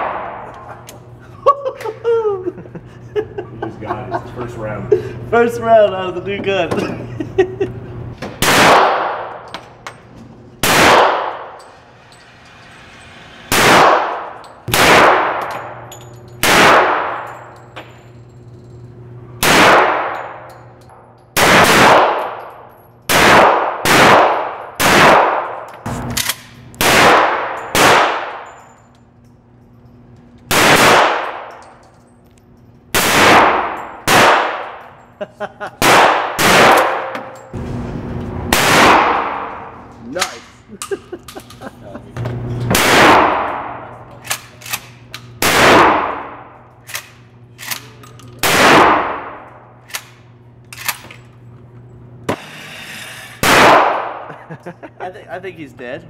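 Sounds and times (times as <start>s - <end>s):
pistol shots echoing indoors: 0.0s - 0.6s, 8.3s - 9.6s, 10.6s - 11.6s, 13.5s - 17.4s, 19.4s - 28.6s, 30.5s - 31.9s, 32.9s - 34.9s, 35.8s - 37.5s, 38.5s - 39.8s, 42.7s - 47.8s, 48.4s - 50.2s, 53.4s - 54.3s.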